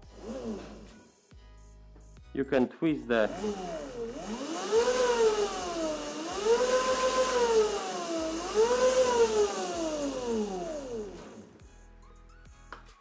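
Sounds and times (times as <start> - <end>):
electric motor whining: 0.0 - 1.0, 3.1 - 11.6.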